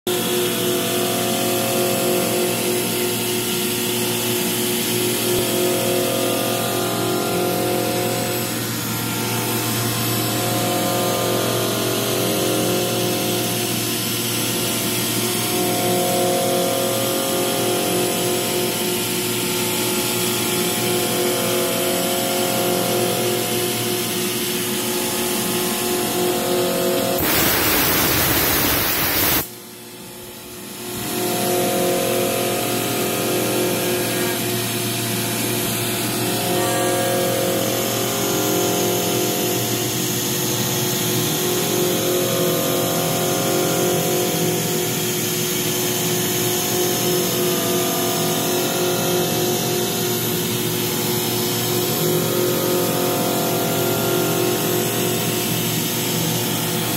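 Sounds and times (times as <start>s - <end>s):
milling machine whine: 24.8s - 29.5s
pulsing hum: 27.0s - 29.5s
loud broad hiss: 27.1s - 29.5s.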